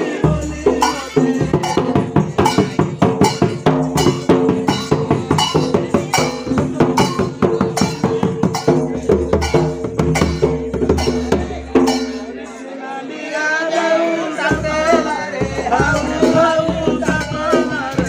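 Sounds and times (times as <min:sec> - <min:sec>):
barrel drum fast rhythm: 0:00.0 - 0:12.6, 0:14.3 - 0:18.0
small hand cymbals clashing: 0:00.2 - 0:12.6.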